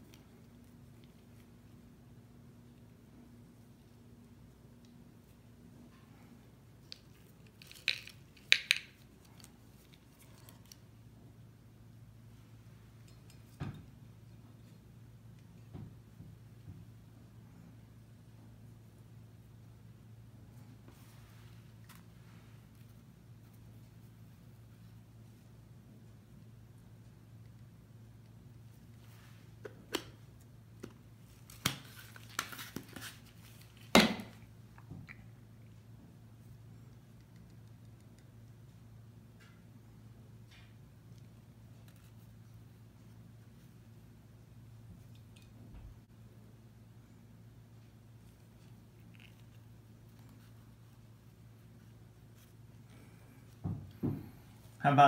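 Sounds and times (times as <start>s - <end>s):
faint steady hum: 0.0s - 55.0s.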